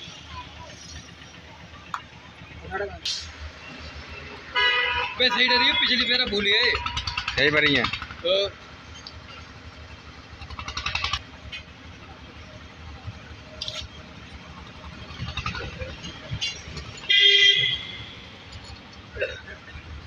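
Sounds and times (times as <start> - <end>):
background traffic rumble: 0.0 - 20.0.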